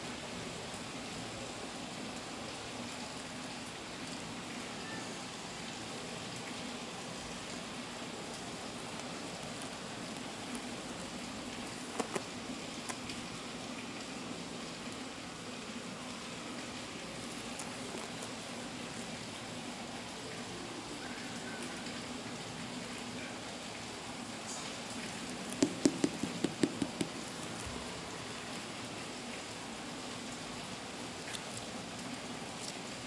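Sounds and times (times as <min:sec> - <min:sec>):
shoe handling clicks: 0:25.5 - 0:27.3.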